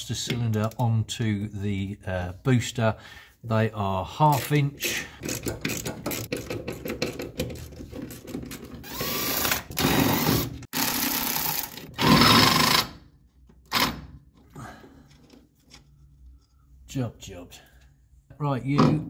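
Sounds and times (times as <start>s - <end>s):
power tool clicking and whirring: 8.8s - 13.0s.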